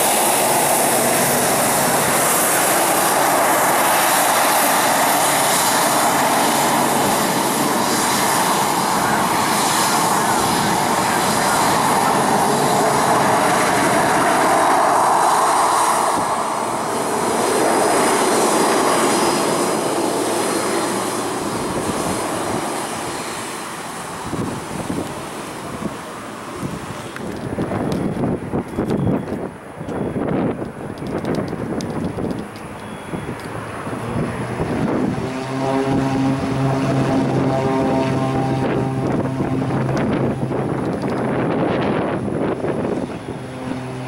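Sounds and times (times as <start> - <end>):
jet engines at taxi power: 0.0 - 44.0.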